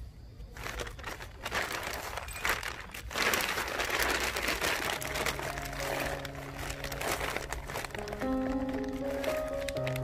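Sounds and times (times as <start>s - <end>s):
plastic bag crinkling: 0.5s - 10.0s
background music: 4.4s - 10.0s.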